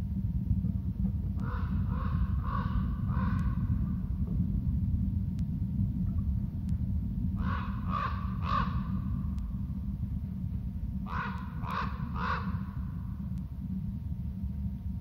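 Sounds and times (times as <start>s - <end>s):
steady low rumble: 0.0s - 15.0s
harsh caw-like bird calls: 1.4s - 3.6s, 7.4s - 9.0s, 11.0s - 12.8s.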